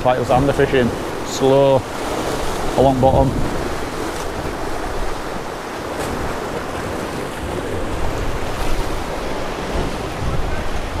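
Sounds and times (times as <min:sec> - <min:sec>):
sea surf breaking on rocks: 0:00.0 - 0:11.0
wind buffeting microphone: 0:00.0 - 0:11.0.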